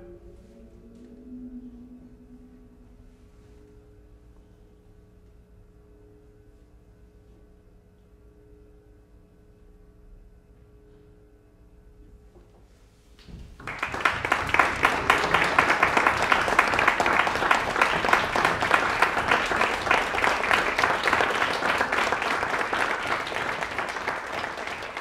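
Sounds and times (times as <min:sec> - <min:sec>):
audience applause: 0:13.4 - 0:25.0.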